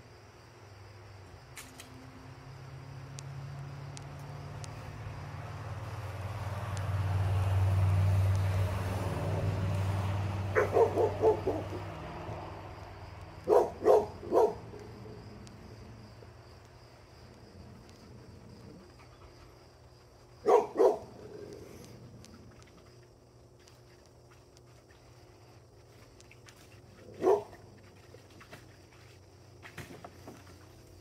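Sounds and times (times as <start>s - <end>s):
low hum: 1.2s - 29.0s
dog barking: 10.5s - 11.8s, 13.4s - 14.8s, 20.4s - 21.1s, 27.1s - 27.6s.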